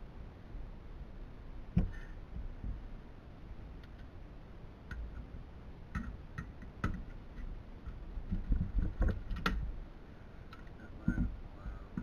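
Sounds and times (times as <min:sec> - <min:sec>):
dull thumps: 0:01.7 - 0:02.8
clicks and knocks of parts: 0:05.9 - 0:09.7.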